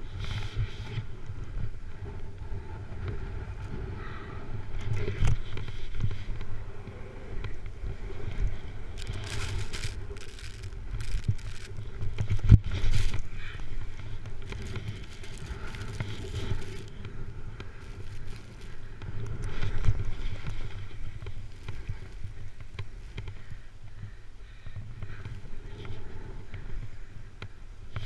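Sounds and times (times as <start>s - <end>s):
wind rumbling on microphone: 0.0s - 28.0s
snowboard scraping over snow: 7.9s - 23.1s.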